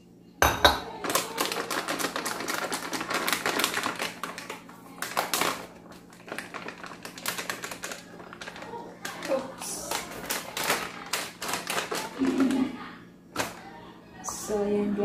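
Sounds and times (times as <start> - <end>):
plastic bag crinkling: 1.0 - 12.8.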